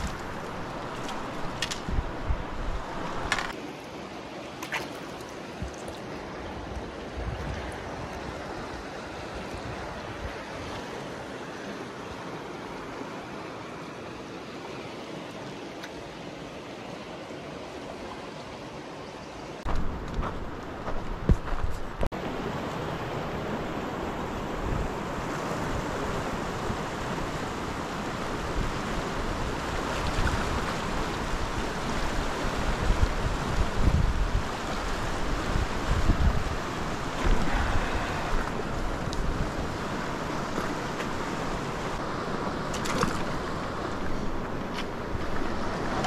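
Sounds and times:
wind rumbling on microphone: 0:00.0 - 0:03.6, 0:05.6 - 0:11.0, 0:19.6 - 0:46.0
river rushing: 0:00.0 - 0:20.9, 0:22.1 - 0:46.0.

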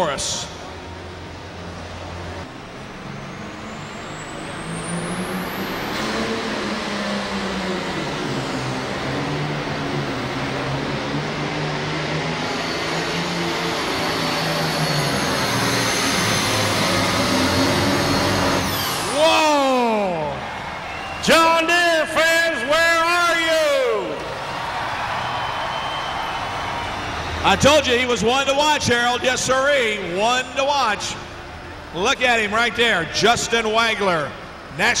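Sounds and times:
tractor diesel engine under load: 0:00.0 - 0:24.6, 0:26.5 - 0:35.0
steady high whine: 0:00.0 - 0:35.0
high whistle rising: 0:11.6 - 0:22.1, 0:24.3 - 0:29.1.

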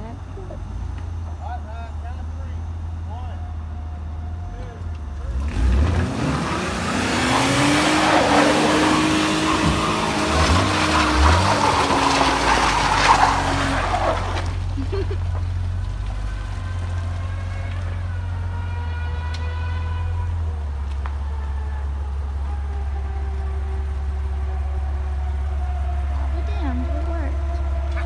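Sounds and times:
car engine revving: 0:00.0 - 0:28.0
tyres spinning on loose ground: 0:05.2 - 0:18.4.

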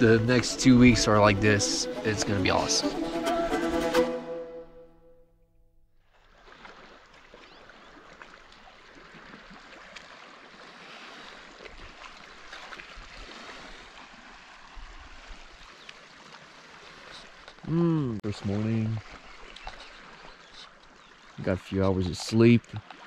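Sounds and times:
small waves lapping on shore: 0:06.0 - 0:23.0.

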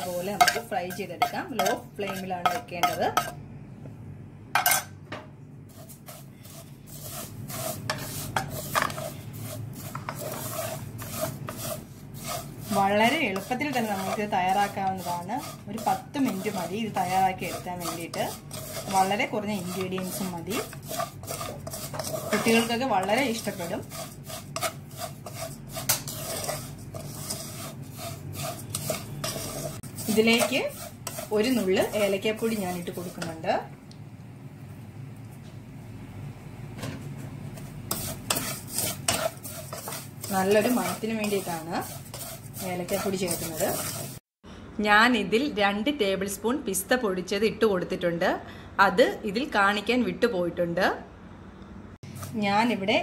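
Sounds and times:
wooden spatula scraping pan: 0:00.0 - 0:03.3, 0:05.7 - 0:33.6, 0:37.6 - 0:44.3
vermicelli frying in butter: 0:00.0 - 0:03.4, 0:05.7 - 0:33.8, 0:37.5 - 0:44.3.

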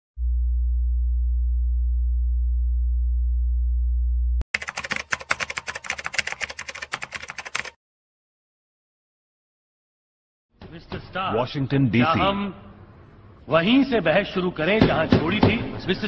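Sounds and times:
deep sine tone: 0:00.2 - 0:04.4.

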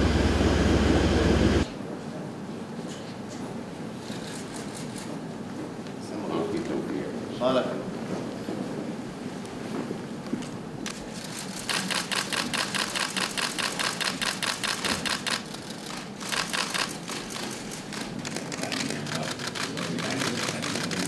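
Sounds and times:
camera shutters clicking: 0:10.9 - 0:21.0.

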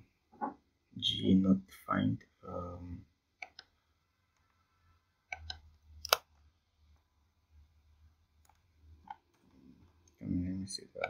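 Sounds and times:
keyboard and mouse clicks: 0:03.4 - 0:03.8, 0:05.3 - 0:06.3, 0:08.4 - 0:10.2.

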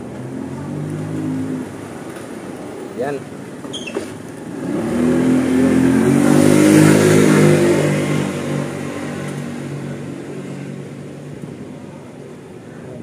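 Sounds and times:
vehicle engine passing: 0:04.4 - 0:11.1.

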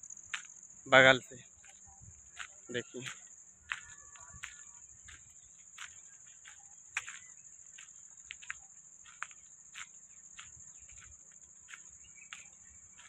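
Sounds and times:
insects droning: 0:00.0 - 0:13.0
slow footsteps: 0:01.6 - 0:13.0.

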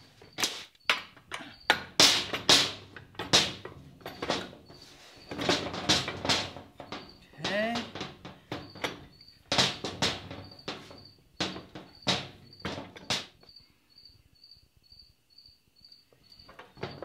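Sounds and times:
cricket chirping: 0:00.0 - 0:17.0
metal clunks and knocks: 0:00.2 - 0:13.4, 0:16.4 - 0:17.0.

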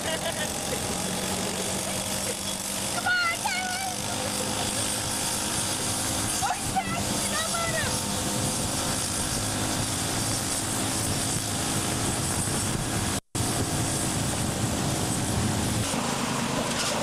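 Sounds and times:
riding lawn mower engine: 0:00.0 - 0:17.0
vehicles driving on gravel: 0:00.0 - 0:17.0.

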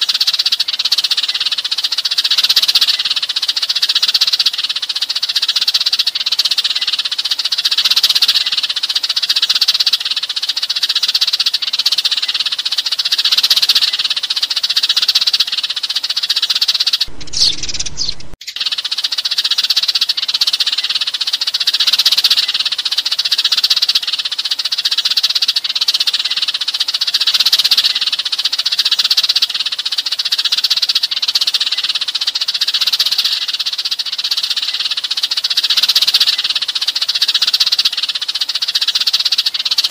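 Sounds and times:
sparrows chirping: 0:00.0 - 0:39.9
low sound: 0:17.1 - 0:18.4.

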